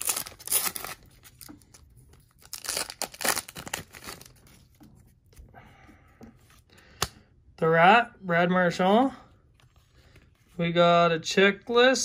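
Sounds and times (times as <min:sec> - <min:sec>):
wrapper tearing and crinkling: 0:00.0 - 0:04.5.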